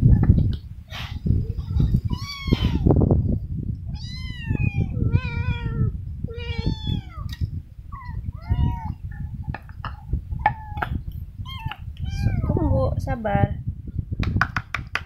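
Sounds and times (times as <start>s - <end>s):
cats meowing: 1.6s - 2.9s, 3.9s - 9.1s, 10.4s - 12.5s.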